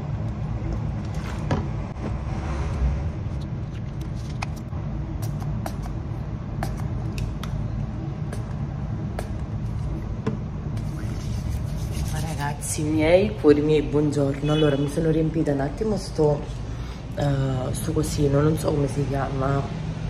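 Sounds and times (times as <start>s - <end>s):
steady low rumble: 0.0s - 14.3s.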